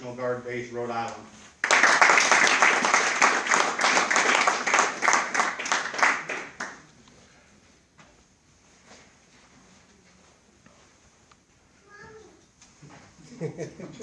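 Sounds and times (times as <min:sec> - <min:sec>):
audience applauding: 0:01.6 - 0:06.8.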